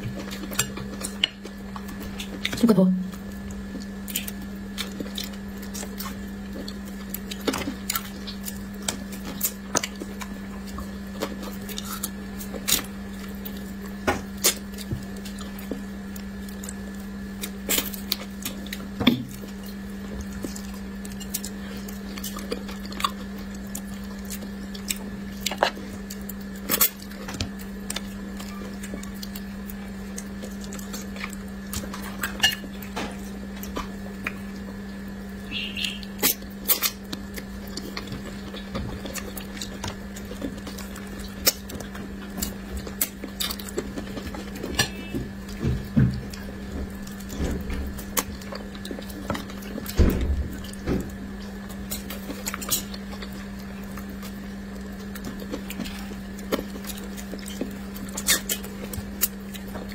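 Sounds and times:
steady low hum: 0.0s - 59.9s
wet chewing and mouth clicks: 35.7s - 50.0s, 51.4s - 59.9s.

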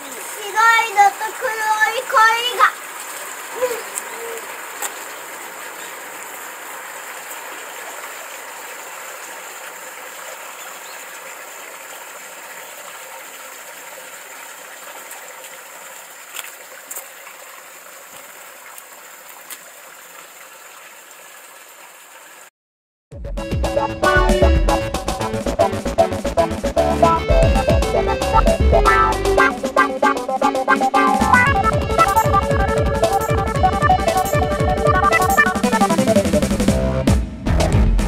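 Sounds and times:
water trickling: 0.0s - 22.5s
music: 23.1s - 38.0s.

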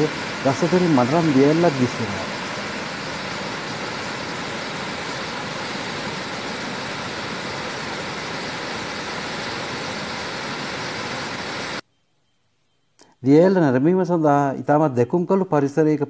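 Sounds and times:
waterfall rushing: 0.0s - 11.8s.

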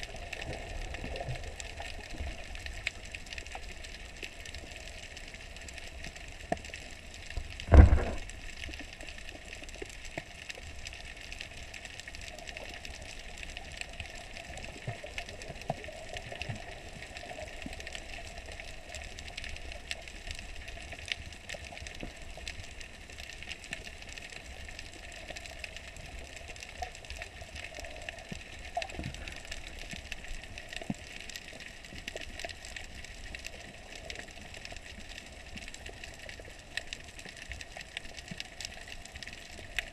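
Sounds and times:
muffled underwater hiss: 0.0s - 39.9s
loud low thump: 7.6s - 8.3s.

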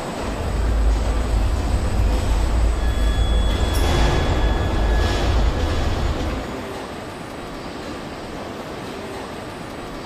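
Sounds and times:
deep steady rumble: 0.2s - 6.4s.

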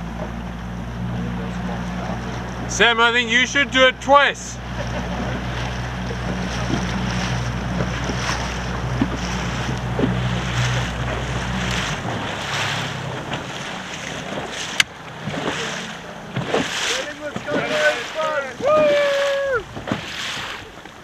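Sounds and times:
choppy water splashing: 0.0s - 21.0s
outboard motor running: 0.0s - 21.0s
wind on microphone: 18.5s - 20.8s.

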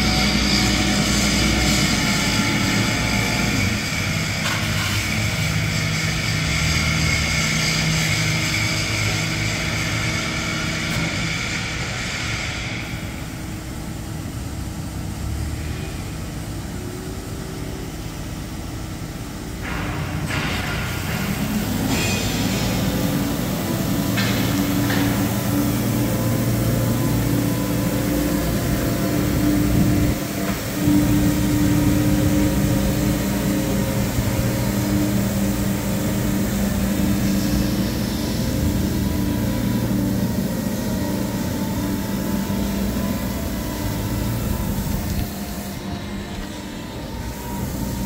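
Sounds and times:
diesel engine running: 0.0s - 48.0s.

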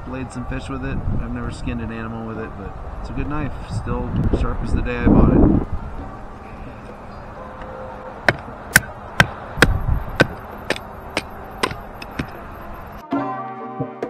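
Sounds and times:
wood striking knife spine: 8.3s - 12.4s
music: 13.0s - 14.0s.

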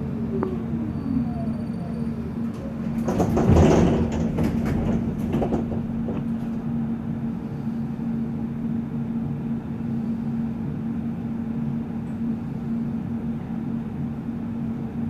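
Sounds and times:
tram electric hum: 0.0s - 15.0s
clicks and knocks: 2.5s - 6.7s.

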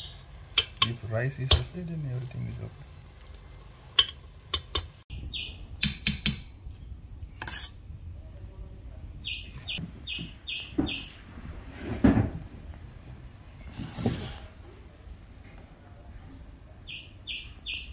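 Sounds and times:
metal spoon clinking on pot: 4.0s - 4.9s.

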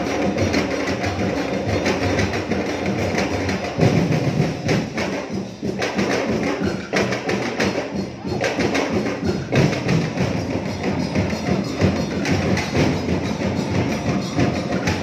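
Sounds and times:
drum ensemble playing fast beat: 0.0s - 15.0s.

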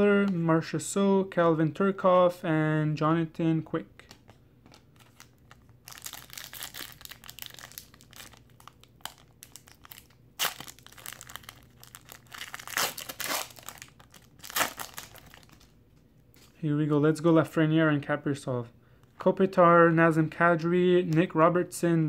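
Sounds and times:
foil wrapper crinkling and tearing: 5.0s - 15.7s.

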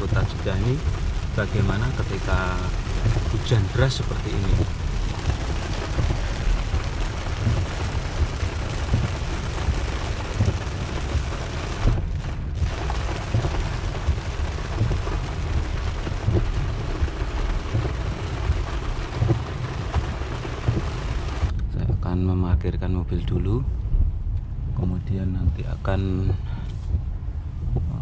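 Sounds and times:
heavy rain drumming on car roof: 0.0s - 21.6s
car driving on wet road: 0.0s - 21.7s.

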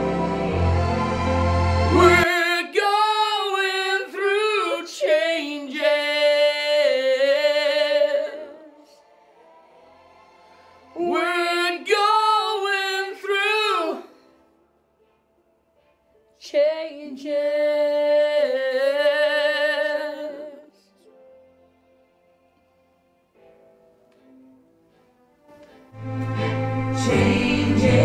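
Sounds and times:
woman singing: 3.5s - 6.6s.

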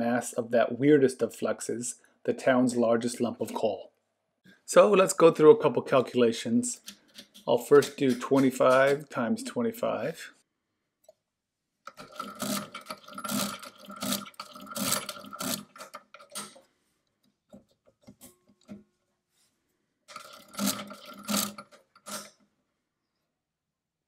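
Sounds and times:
calculator gears clattering: 11.9s - 16.4s, 20.1s - 22.3s
carriage clicks: 20.1s - 22.4s.

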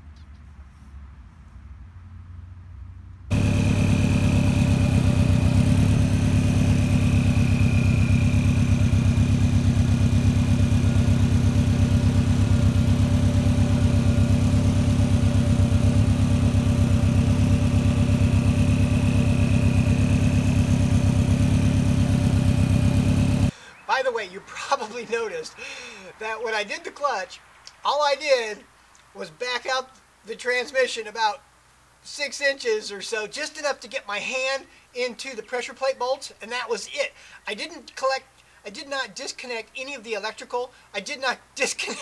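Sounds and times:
car engine idling: 3.3s - 23.6s.

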